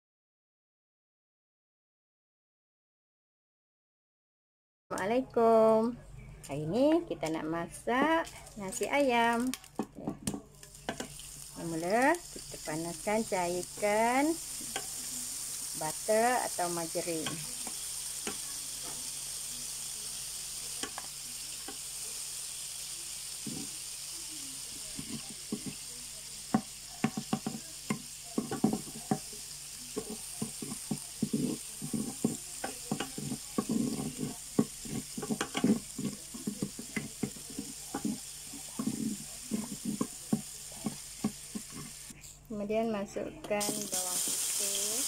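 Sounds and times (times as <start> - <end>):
margarine sizzling in a pan: 6.7 - 42.2, 43.4 - 45.0
wooden spatula knocking on a pan: 25.0 - 25.8, 26.5 - 29.3, 30.0 - 41.9.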